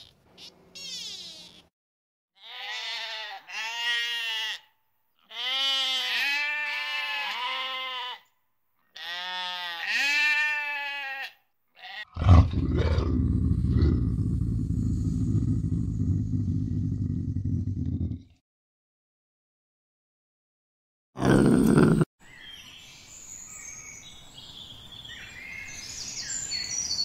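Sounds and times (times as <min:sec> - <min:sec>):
goat bleating: 0:02.4 - 0:08.2, 0:09.0 - 0:12.2.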